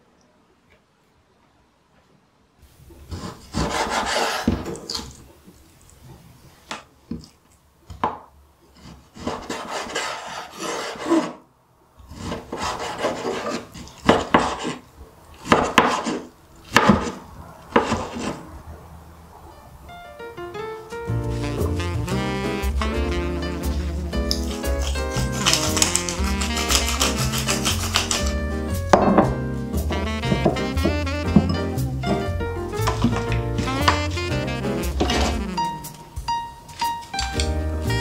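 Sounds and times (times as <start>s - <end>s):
knife slicing fish on board: 24.3s - 28.4s.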